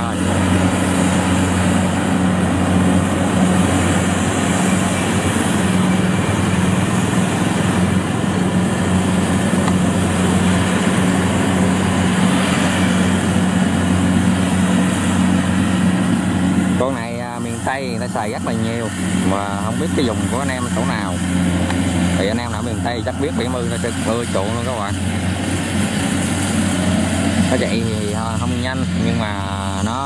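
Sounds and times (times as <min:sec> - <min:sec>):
combine harvester engine drone: 0:00.0 - 0:30.0
cutting and threshing noise: 0:00.0 - 0:30.0.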